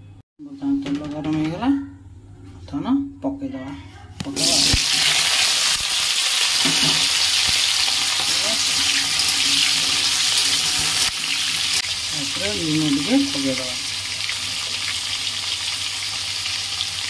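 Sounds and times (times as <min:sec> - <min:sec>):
vegetables sizzling in hot oil: 0:04.4 - 0:17.0.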